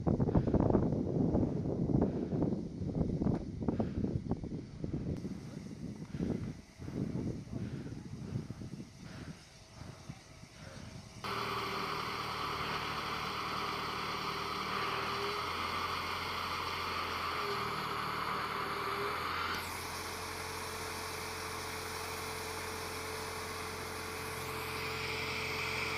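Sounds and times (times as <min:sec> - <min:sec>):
engine running steadily: 0:04.9 - 0:25.9.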